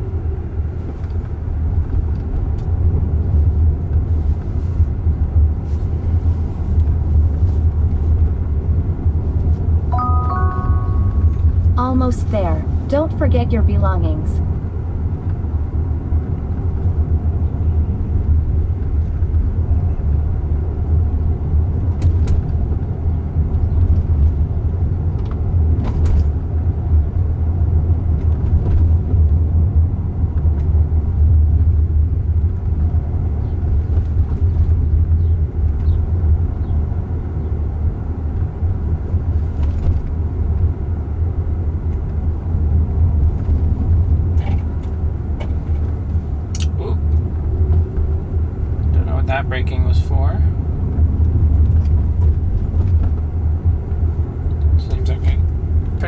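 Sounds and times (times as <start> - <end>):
road and tyre rumble: 0.0 - 56.0.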